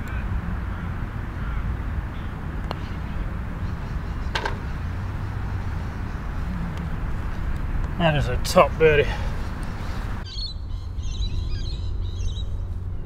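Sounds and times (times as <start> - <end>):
low rumble: 0.0 - 13.0
putter tapping golf ball: 2.6 - 3.2, 4.3 - 4.8.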